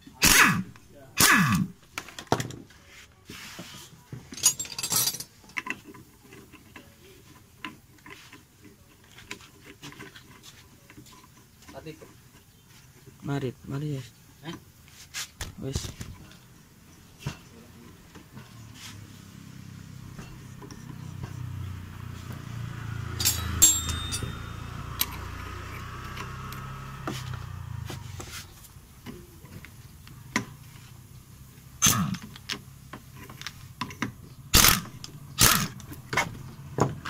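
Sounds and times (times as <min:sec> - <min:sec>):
metal tools clicking and clanking: 0:04.3 - 0:12.0, 0:20.1 - 0:27.1, 0:31.8 - 0:36.4.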